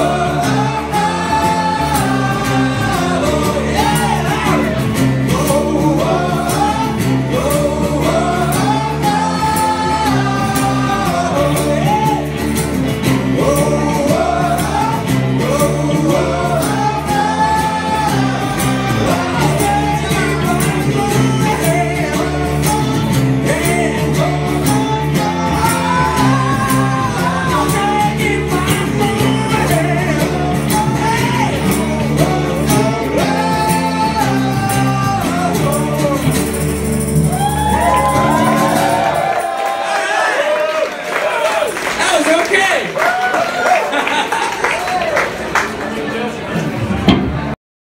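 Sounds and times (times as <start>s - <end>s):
man singing: 0.0s - 36.8s
strummed acoustic guitar: 0.0s - 39.4s
second guitar playing: 0.0s - 39.6s, 46.8s - 47.6s.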